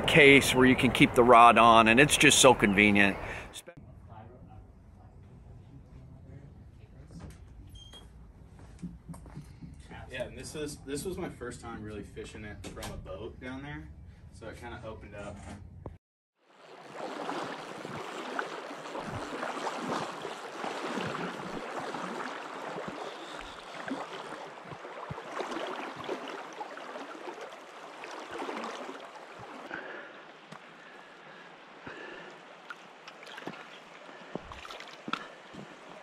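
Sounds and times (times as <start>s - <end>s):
river running over stones: 16.5s - 36.0s.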